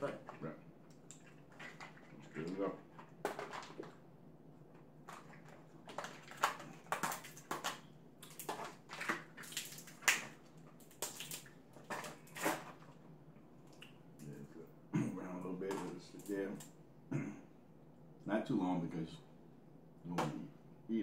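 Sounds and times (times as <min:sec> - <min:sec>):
crab shells cracking: 0:05.1 - 0:12.6.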